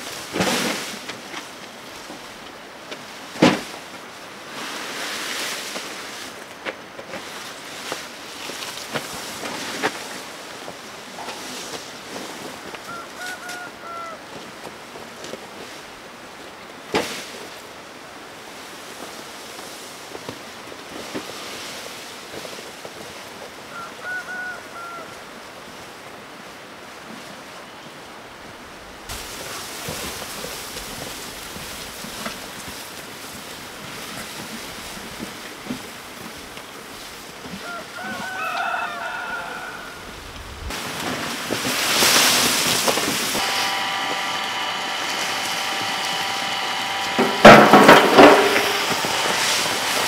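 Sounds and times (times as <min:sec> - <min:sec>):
chickens calling: 0:12.6 - 0:14.4, 0:23.7 - 0:25.3, 0:37.5 - 0:40.4, 0:41.9 - 0:50.0
outdoor hiss: 0:24.5 - 0:50.0.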